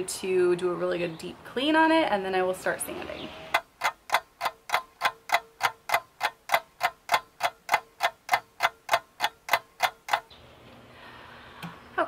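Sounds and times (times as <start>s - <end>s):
clock ticking: 3.5s - 10.3s.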